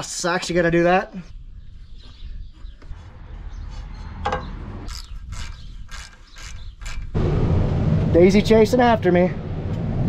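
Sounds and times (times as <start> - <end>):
metal tool clicks and scrapes: 4.8 - 7.2.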